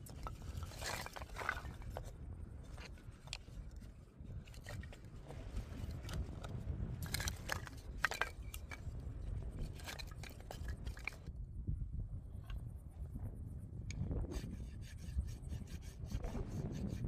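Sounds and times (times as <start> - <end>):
wooden sticks clacking: 7.0 - 8.8.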